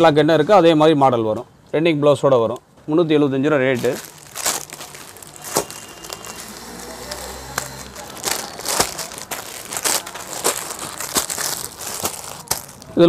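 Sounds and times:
plastic covers crinkling: 3.7 - 13.0.

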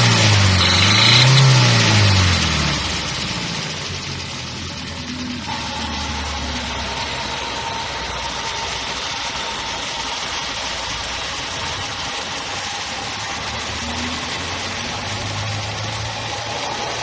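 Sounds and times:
petrol engine idling with ticking: 0.0 - 17.0
thin steady whine: 0.5 - 1.5, 5.1 - 17.0.

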